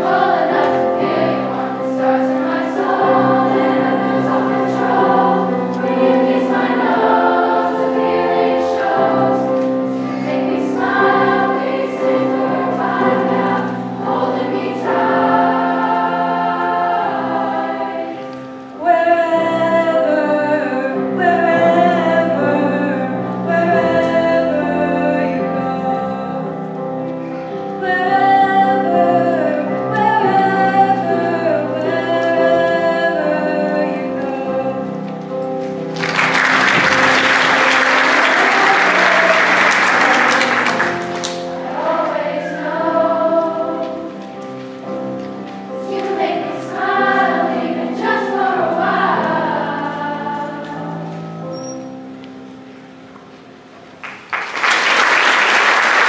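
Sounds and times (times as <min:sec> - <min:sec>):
girls' choir singing: 0:00.0 - 0:26.6, 0:27.7 - 0:51.4
piano accompaniment: 0:00.0 - 0:56.0
applause: 0:35.9 - 0:41.5, 0:54.0 - 0:56.0.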